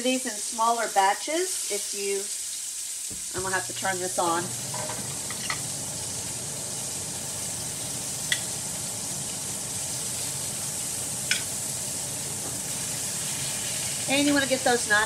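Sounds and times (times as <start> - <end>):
meat sizzling in a skillet: 0.0 - 15.0
metal tongs clicking on pan: 8.3 - 8.5, 11.3 - 11.5.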